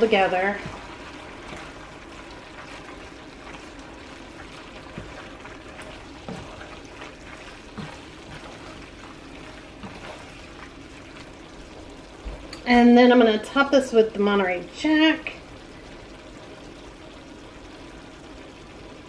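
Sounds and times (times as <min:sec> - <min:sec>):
wet stirring of pasta: 0:00.0 - 0:12.7
light sizzling: 0:00.0 - 0:19.0.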